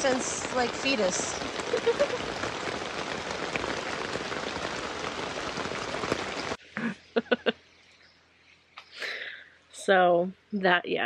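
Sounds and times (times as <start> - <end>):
heavy rain falling: 0.0 - 7.5.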